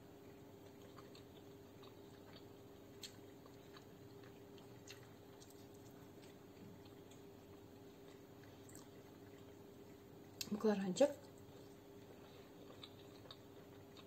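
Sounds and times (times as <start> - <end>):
faint steady hum: 0.0 - 14.0
quiet chewing: 0.2 - 14.0.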